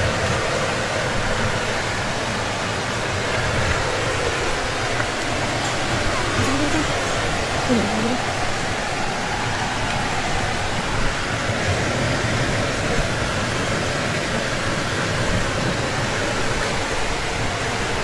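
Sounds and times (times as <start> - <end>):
river rushing over rocks: 0.0 - 18.0.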